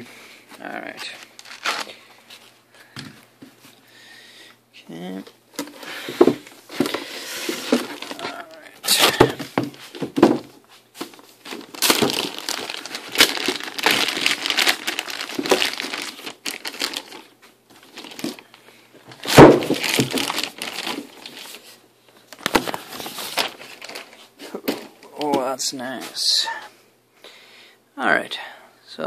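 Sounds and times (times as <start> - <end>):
plastic bag crinkling: 1.0 - 2.5, 11.0 - 25.4.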